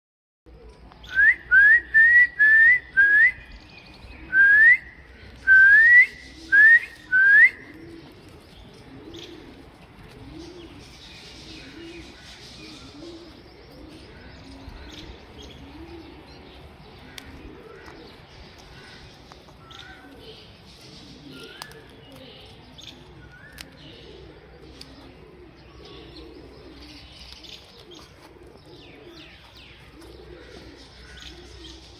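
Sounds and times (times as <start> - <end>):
soft low bird calls: 0.5 - 31.9.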